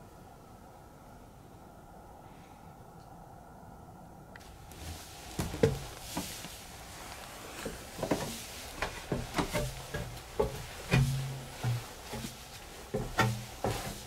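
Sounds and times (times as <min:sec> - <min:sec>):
footsteps on wooden stairs: 0:04.7 - 0:14.0
wooden boards creaking: 0:04.8 - 0:06.3, 0:07.6 - 0:14.0.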